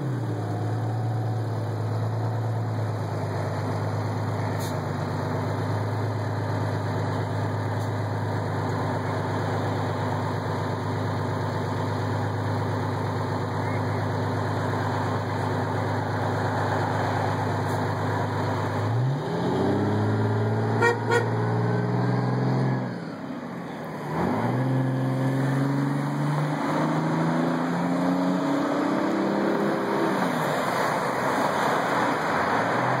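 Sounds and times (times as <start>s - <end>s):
fire truck engine revving: 0.0s - 23.2s, 23.9s - 33.0s
truck horn toots: 20.7s - 21.9s.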